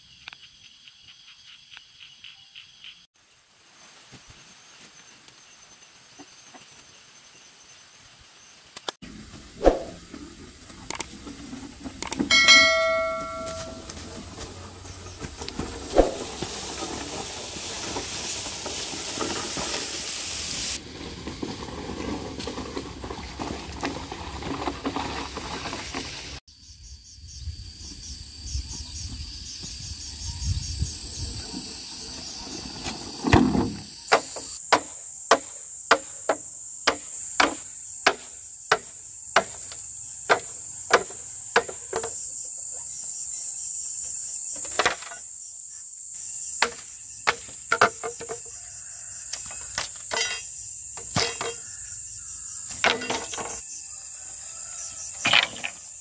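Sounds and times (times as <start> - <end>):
chopping strikes: 34.1 - 39.7, 46.6 - 47.9.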